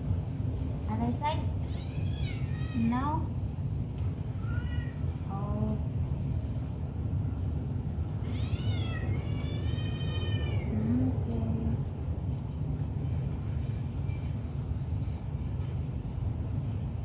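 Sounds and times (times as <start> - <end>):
steady low rumble: 0.0 - 17.0
cat meowing: 1.6 - 3.0, 8.2 - 10.8.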